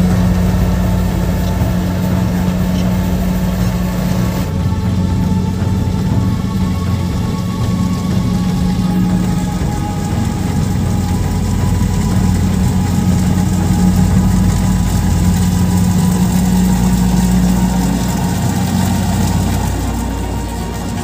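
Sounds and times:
combine harvester diesel engine: 0:00.0 - 0:21.0.

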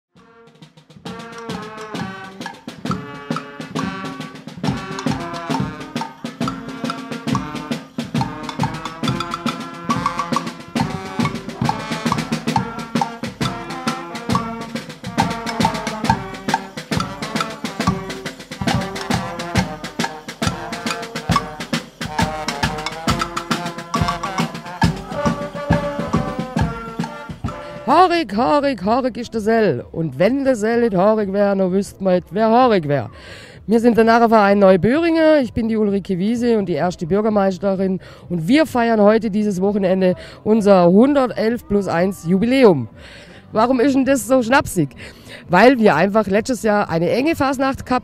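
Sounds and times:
brass band music: 0:00.1 - 0:29.1
drum strikes: 0:00.2 - 0:28.2.

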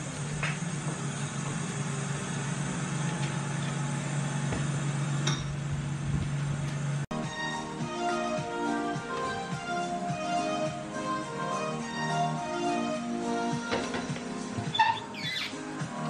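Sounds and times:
appliance hum with hiss: 0:00.0 - 0:07.0
music: 0:07.1 - 0:16.0.

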